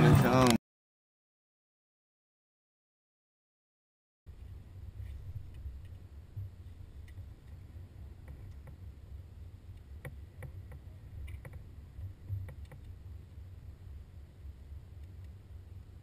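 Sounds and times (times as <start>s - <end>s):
low wind rumble: 4.3s - 16.0s.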